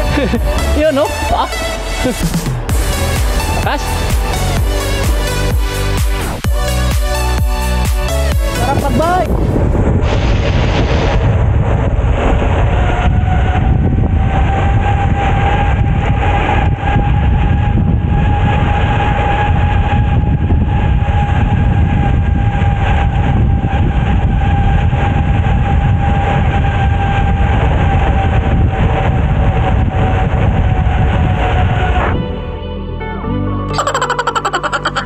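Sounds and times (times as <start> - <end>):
steady high whine: 0.0 - 28.6
wind rushing: 0.0 - 32.2
wind buffeting microphone: 0.0 - 32.3
bicycle tyres rolling on road: 9.7 - 31.4.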